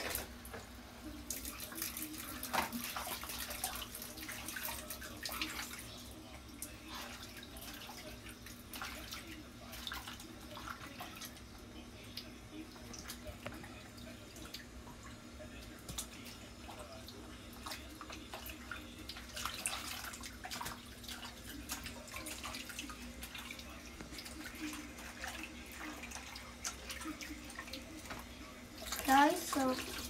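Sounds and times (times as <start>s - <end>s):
water splashing in plastic basin: 1.2s - 30.0s.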